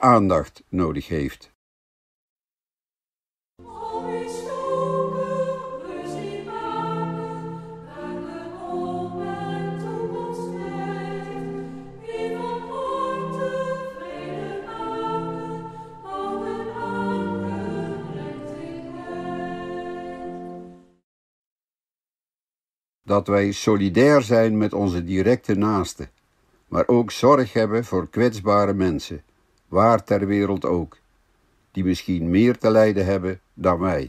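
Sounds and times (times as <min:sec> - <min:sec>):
person speaking: 0:00.0 - 0:01.6, 0:23.1 - 0:26.1, 0:31.8 - 0:34.0
choir singing chords: 0:03.6 - 0:21.0.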